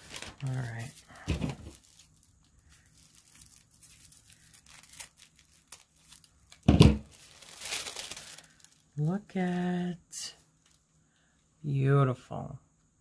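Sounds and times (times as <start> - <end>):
paper ripping: 0.0 - 8.7
paper rustling: 0.0 - 8.8
tissue paper crinkling: 0.0 - 10.9.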